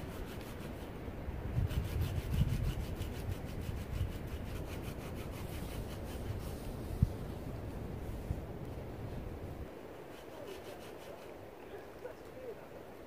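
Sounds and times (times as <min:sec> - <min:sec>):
hand saw cutting wood: 0:00.0 - 0:00.9, 0:01.6 - 0:06.4, 0:10.0 - 0:11.3.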